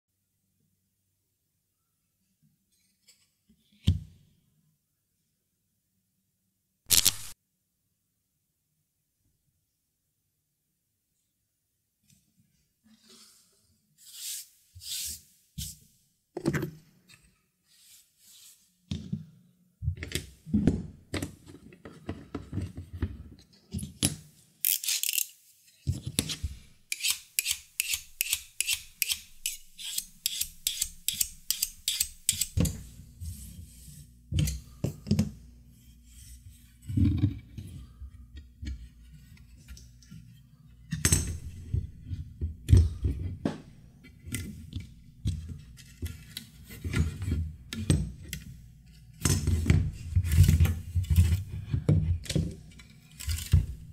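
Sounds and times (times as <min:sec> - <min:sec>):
quick run of clicks: 0:06.9 - 0:07.4.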